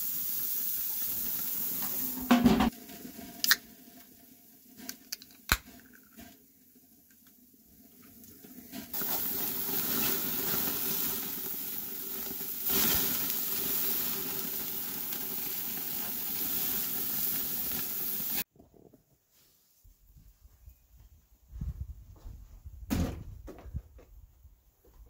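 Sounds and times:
burgers sizzling on a grill: 0:00.0 - 0:04.8, 0:07.5 - 0:18.5.

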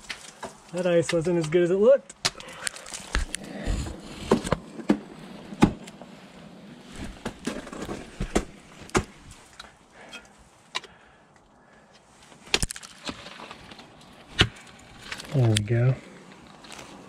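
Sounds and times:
scraping and handling noise: 0:02.3 - 0:10.9, 0:12.1 - 0:17.0.

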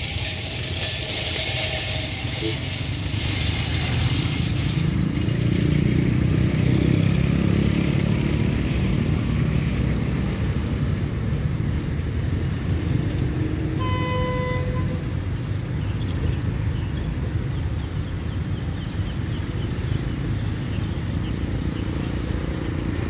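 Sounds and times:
diesel engine rumble: 0:00.0 - 0:23.0
train horn blast: 0:13.8 - 0:15.3.

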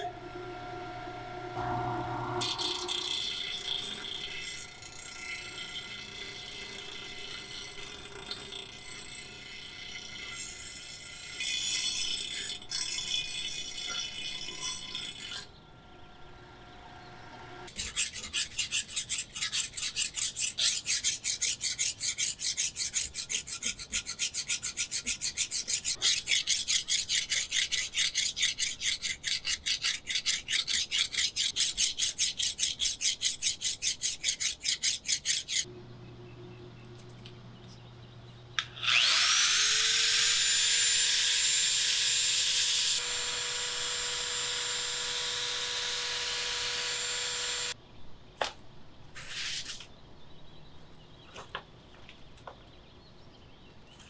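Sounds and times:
abrasive scraping a workpiece: 0:00.0 - 0:10.4.

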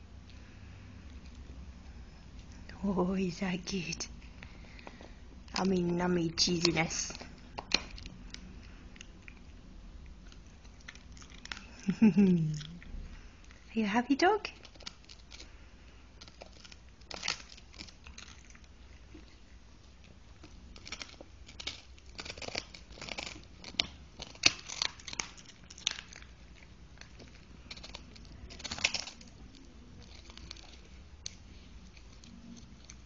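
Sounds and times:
dog crunching a chew: 0:03.7 - 0:13.7, 0:14.5 - 0:33.0.

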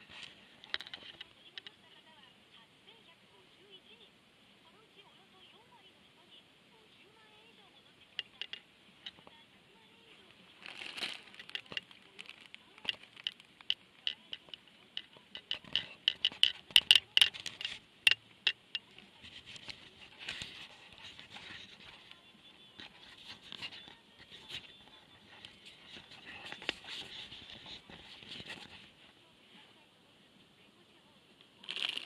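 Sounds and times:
plastic packet crinkling: 0:10.5 - 0:17.8, 0:31.6 - 0:32.0.

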